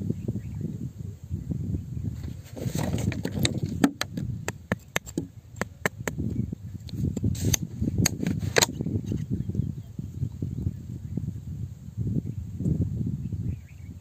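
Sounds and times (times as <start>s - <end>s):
stick clicking in stony soil: 2.7s - 8.8s.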